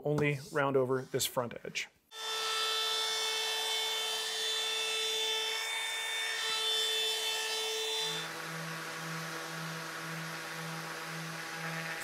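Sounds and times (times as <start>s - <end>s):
router whining: 5.8s - 12.0s.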